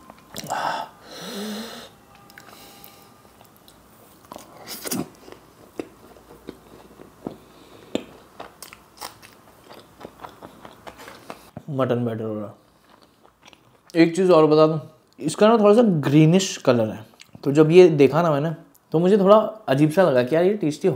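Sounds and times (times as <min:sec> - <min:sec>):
loud breathy sound: 0:00.4 - 0:03.2
wet chewing and lip smacks: 0:05.2 - 0:11.6.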